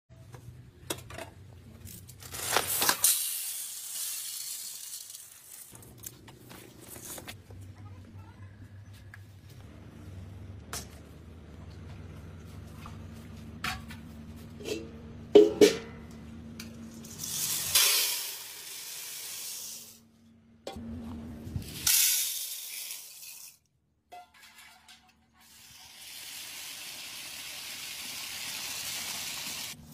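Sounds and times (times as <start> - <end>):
chickpeas pouring into metal bucket: 2.7 - 5.8, 17.0 - 20.0, 21.7 - 23.6
metal vessels clanking: 14.6 - 16.2, 24.1 - 25.3.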